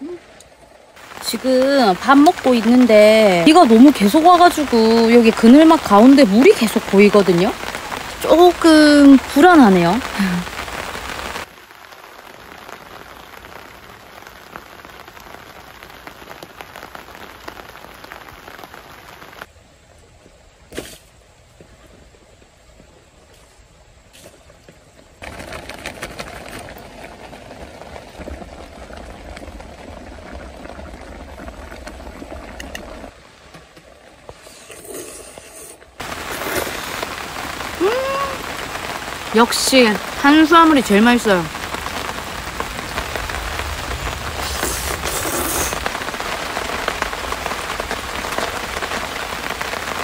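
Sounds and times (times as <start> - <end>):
steady rain falling: 0.0 - 50.0.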